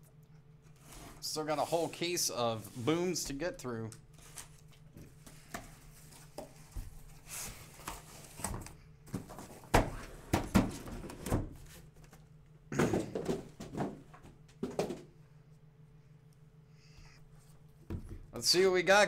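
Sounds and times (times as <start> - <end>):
boxes knocking on table: 12.7 - 15.1.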